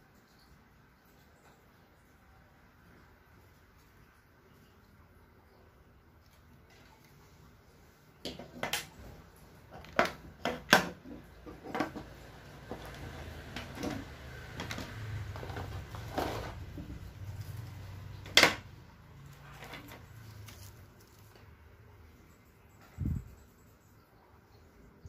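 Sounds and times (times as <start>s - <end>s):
cables rustling: 8.3s - 21.8s
plastic objects knocking on wood: 9.7s - 16.9s.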